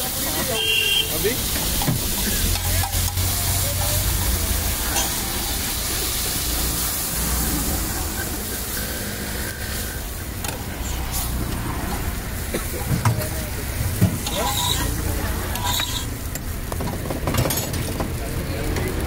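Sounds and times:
food sizzling on iron griddle: 0.0s - 19.0s
low road traffic rumble: 0.0s - 19.0s
metal spatula tapping and scraping: 1.6s - 4.0s, 14.0s - 18.0s.

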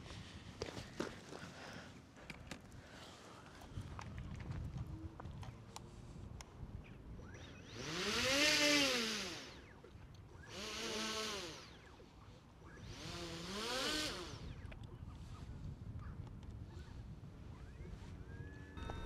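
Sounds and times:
electric motor whine: 7.5s - 9.8s, 10.4s - 11.9s, 12.7s - 14.6s, 18.6s - 19.0s.

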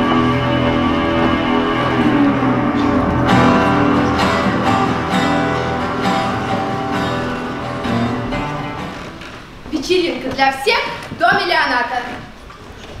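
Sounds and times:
strummed guitar chords: 0.0s - 9.6s.

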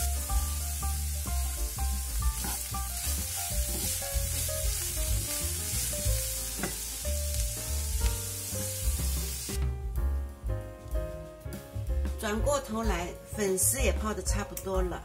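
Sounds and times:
food sizzling in oil: 0.0s - 9.6s
background music: 0.0s - 15.0s
wooden spatula stirring: 2.4s - 6.8s.

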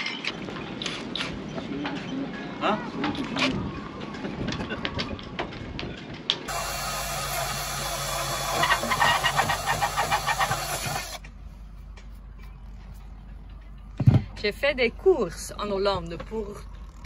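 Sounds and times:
drill motor whine: 6.5s - 11.2s.

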